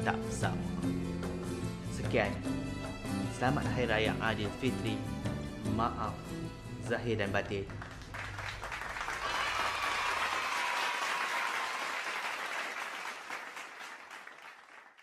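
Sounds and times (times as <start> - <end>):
crowd applauding: 7.6 - 15.0.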